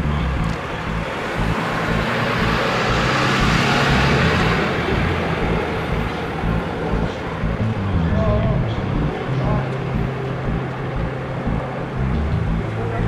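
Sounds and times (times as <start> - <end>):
car passing by: 0.5 - 7.4.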